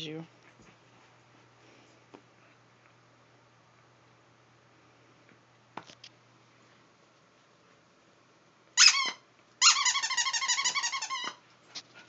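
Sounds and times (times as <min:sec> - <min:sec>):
dog toy squeaking: 0:08.8 - 0:11.4.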